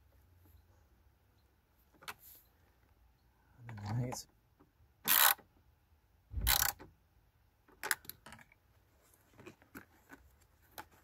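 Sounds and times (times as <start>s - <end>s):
clicks and knocks of parts handled: 3.6s - 5.4s, 7.6s - 11.0s
ratchet clicking: 5.1s - 5.4s, 6.4s - 6.8s.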